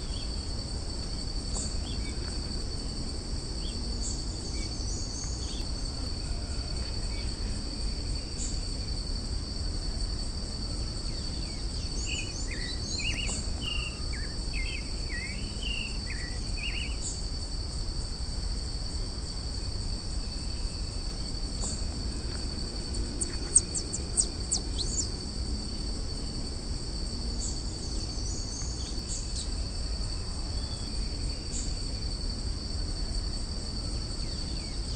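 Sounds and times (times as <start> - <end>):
high-pitched insect drone: 0.0 - 34.9
low background rumble: 0.0 - 34.9
bird chirping: 12.0 - 16.9, 23.2 - 25.1.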